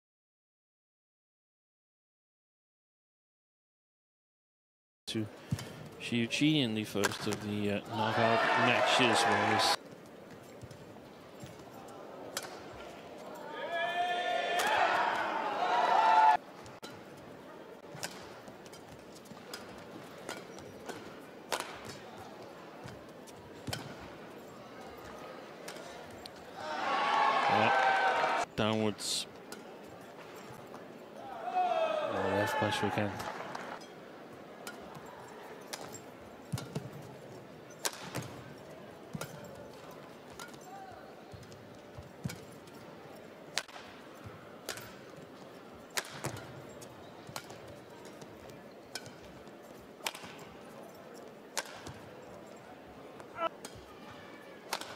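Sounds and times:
murmur of indoor arena: 0:05.1 - 0:54.9
rackets hitting shuttlecock: 0:12.3 - 0:12.8, 0:17.9 - 0:22.0, 0:23.6 - 0:24.1, 0:36.5 - 0:37.0, 0:37.8 - 0:38.4, 0:43.5 - 0:44.0, 0:44.6 - 0:45.2, 0:45.9 - 0:49.4, 0:50.0 - 0:50.4, 0:51.5 - 0:52.1, 0:54.7 - 0:54.9.

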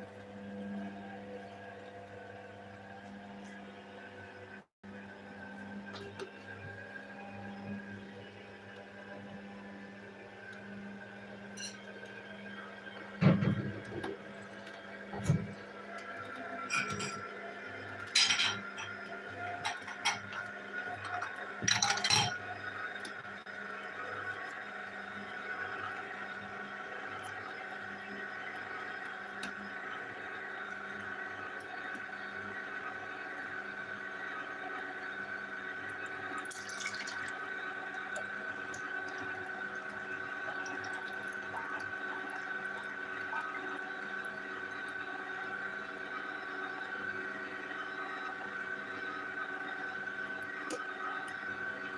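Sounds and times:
juicer motor hum: 0:00.0 - 0:51.9
seeds crackling in juicer: 0:13.8 - 0:51.9
juice pouring and dripping: 0:35.8 - 0:51.9.

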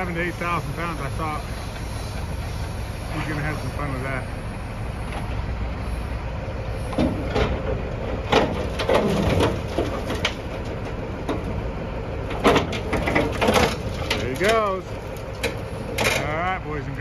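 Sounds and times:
metal clanks and scrapes: 0:06.9 - 0:11.5, 0:12.3 - 0:14.8, 0:15.4 - 0:16.3.

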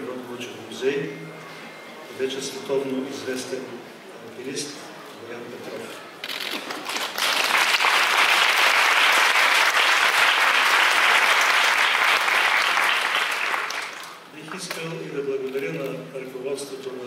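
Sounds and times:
audience applauding: 0:06.5 - 0:14.8.

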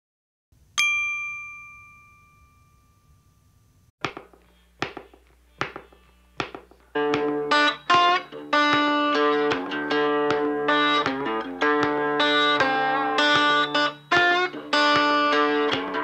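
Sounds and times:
bright metallic ding: 0:00.8 - 0:03.7.

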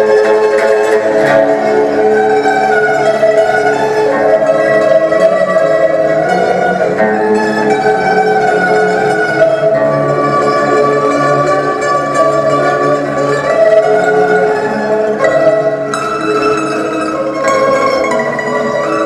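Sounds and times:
lutes playing held notes: 0:00.0 - 0:19.0.

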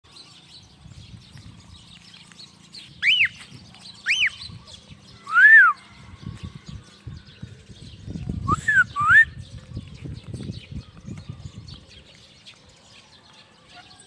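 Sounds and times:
small birds chirping: 0:00.1 - 0:14.0
loud rising and falling whistles: 0:05.3 - 0:05.8, 0:08.4 - 0:09.4.

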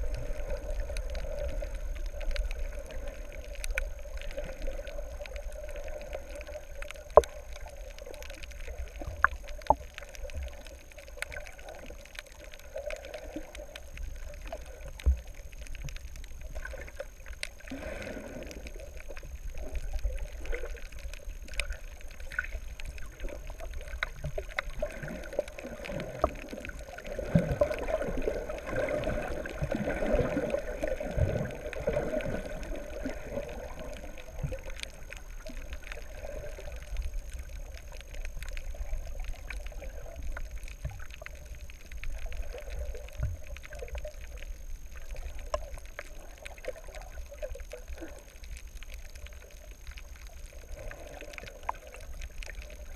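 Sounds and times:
faint clicks: 0:00.0 - 0:52.9
underwater water rumble: 0:00.0 - 0:52.9.

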